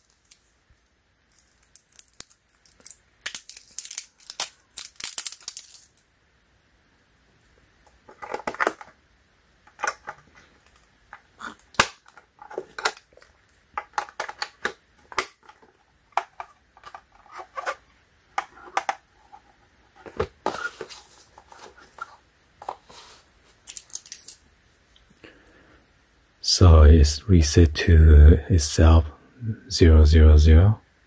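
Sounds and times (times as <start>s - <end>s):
plastic cover snapping shut: 8.1s - 8.9s, 11.6s - 17.8s
batteries clicking into compartment: 9.7s - 10.8s, 11.7s - 17.8s
plastic handling clicks: 9.7s - 17.8s.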